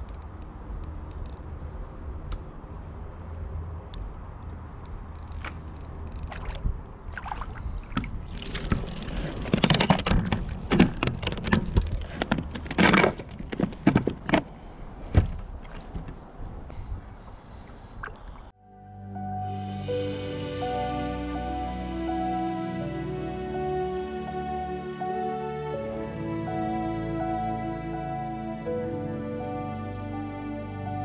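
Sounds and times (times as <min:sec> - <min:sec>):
wind rumble on microphone: 0:04.9 - 0:14.2.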